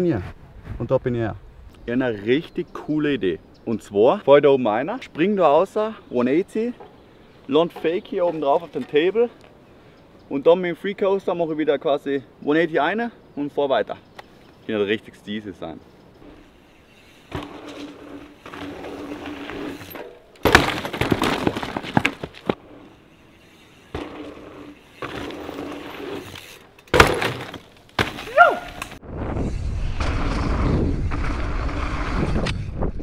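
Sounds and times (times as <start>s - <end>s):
bike tyres rolling on dirt: 14.2s - 33.0s
bike landing impact: 17.3s - 22.8s, 23.8s - 29.0s
wind on microphone: 29.0s - 33.0s.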